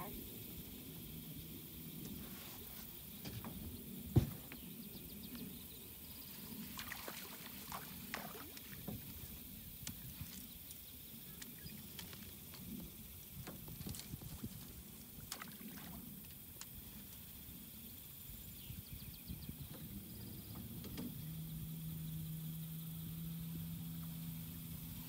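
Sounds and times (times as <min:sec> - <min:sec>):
low rumble of water and wind: 0:00.0 - 0:25.0
boat motor humming: 0:19.5 - 0:25.0.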